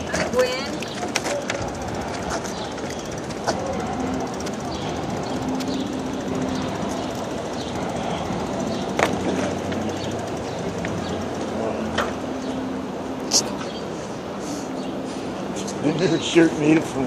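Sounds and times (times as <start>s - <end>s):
wheels rolling over concrete: 0.0s - 12.8s.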